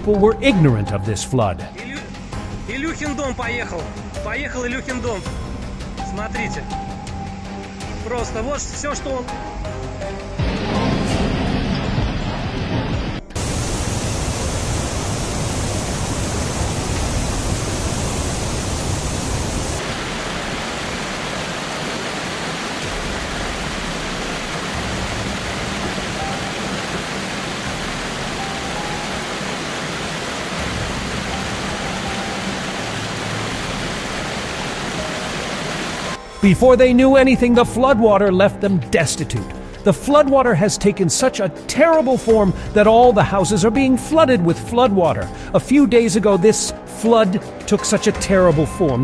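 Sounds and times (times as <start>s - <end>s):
floodwater rushing: 13.4s - 36.2s.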